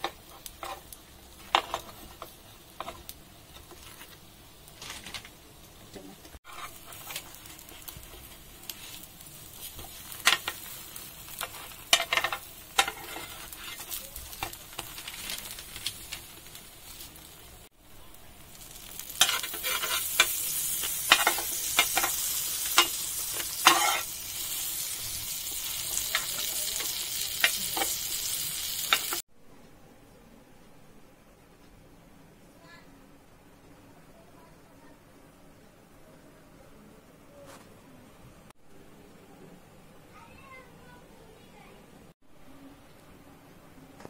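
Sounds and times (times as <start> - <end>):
spatula tapping and scraping pan: 0.0 - 4.0, 9.7 - 15.4, 19.2 - 24.1
butter sizzling in hot pan: 0.0 - 5.8, 6.5 - 29.2.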